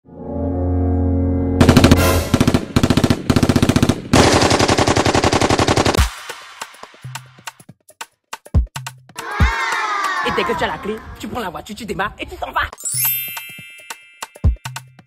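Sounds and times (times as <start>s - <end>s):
machine-gun fire: 1.6s - 6.3s.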